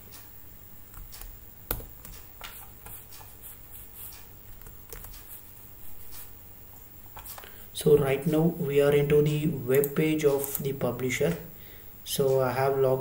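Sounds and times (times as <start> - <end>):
low room noise: 0.0 - 13.0.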